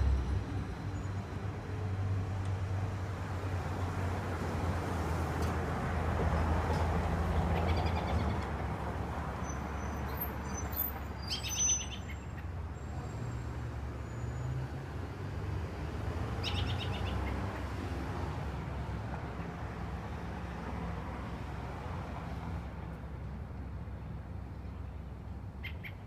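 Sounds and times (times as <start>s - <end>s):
thin high bird whistles: 10.5s - 12.2s
bird chirping: 10.5s - 12.4s.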